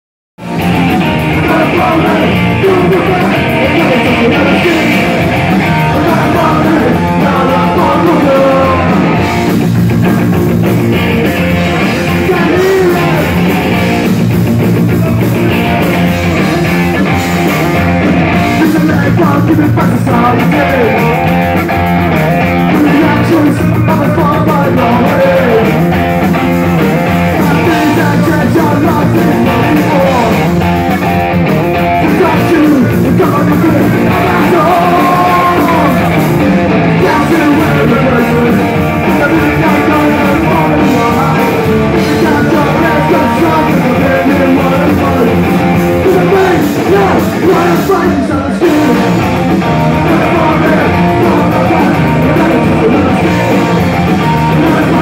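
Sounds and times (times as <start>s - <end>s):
bass guitar: 0.4s - 55.0s
drums: 0.4s - 55.0s
electric guitars: 0.4s - 55.0s
person singing into microphone: 1.3s - 9.1s, 11.9s - 13.4s, 18.5s - 21.0s, 22.7s - 25.8s, 27.4s - 30.5s, 32.0s - 36.2s, 36.8s - 49.2s, 49.9s - 55.0s.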